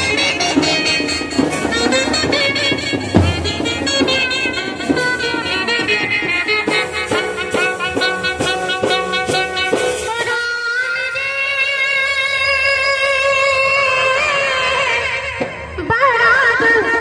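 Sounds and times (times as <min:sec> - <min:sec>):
brass band playing: 0:00.0 - 0:10.1.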